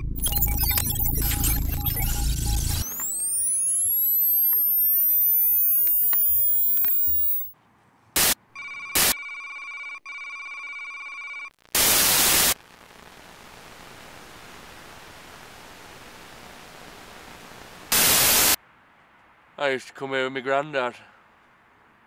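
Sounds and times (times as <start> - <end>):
bursts of static: 0.0 - 7.5, 8.2 - 8.4, 11.5 - 18.6
steady electronic buzz: 0.0 - 7.5, 11.7 - 18.6
sweeping synthetic tones: 0.0 - 7.5
faint steady hiss: 11.7 - 22.0.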